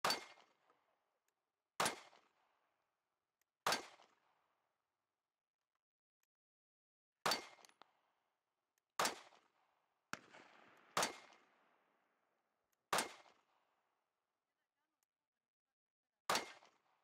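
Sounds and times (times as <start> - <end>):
pistol shots with echo: 0.0 - 0.6, 1.8 - 2.4, 3.6 - 4.2, 7.2 - 7.8, 9.0 - 12.0, 12.9 - 13.6, 16.3 - 16.9.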